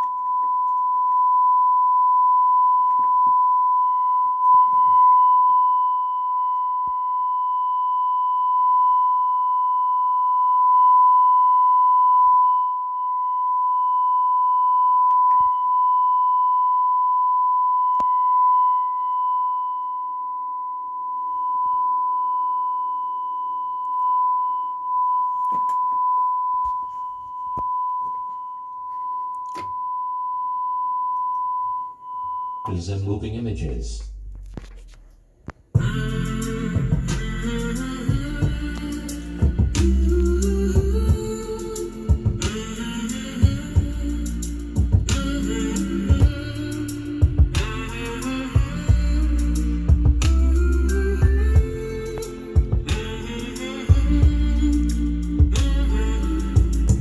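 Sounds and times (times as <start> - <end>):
sine-wave test tone: 0.0 - 32.8.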